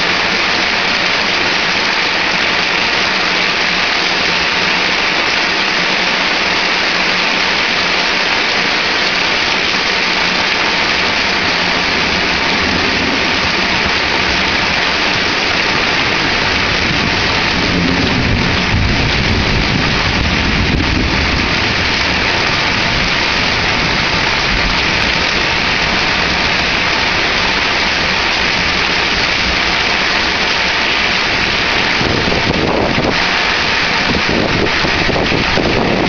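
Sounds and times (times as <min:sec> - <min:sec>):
heavy rain pouring: 0:00.0 - 0:36.0
low thunder rumble: 0:11.4 - 0:36.0.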